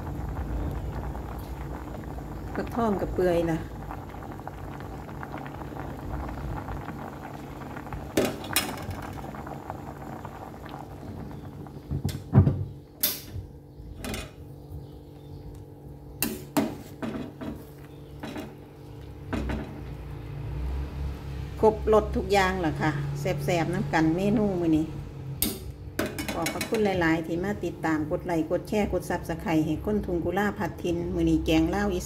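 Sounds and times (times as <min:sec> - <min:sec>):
soup bubbling: 0:00.0 - 0:21.5.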